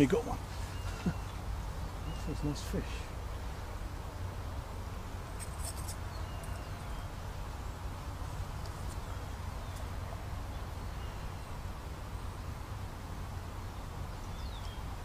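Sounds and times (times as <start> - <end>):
low rumble with hiss: 0.0 - 15.0
faint bird chirps: 0.5 - 3.5, 5.4 - 7.2, 14.2 - 14.9.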